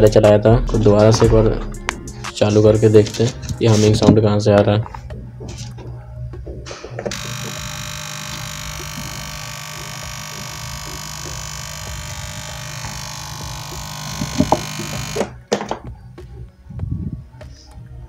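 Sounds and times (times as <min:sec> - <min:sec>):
amplifier electrical hum and buzz: 0:05.2 - 0:15.5.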